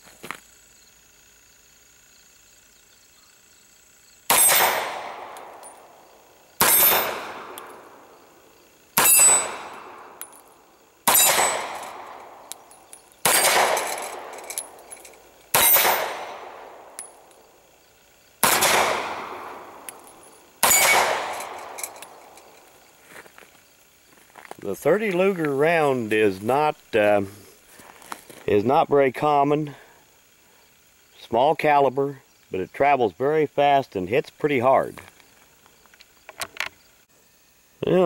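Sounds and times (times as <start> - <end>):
pistol shots: 4.3 - 5.8, 6.6 - 8.0, 9.0 - 10.3, 11.0 - 12.6, 13.2 - 14.8, 15.5 - 17.3, 18.4 - 22.4
metallic ring of steel targets: 4.3 - 6.0, 6.6 - 8.0, 9.0 - 17.4, 18.4 - 22.7.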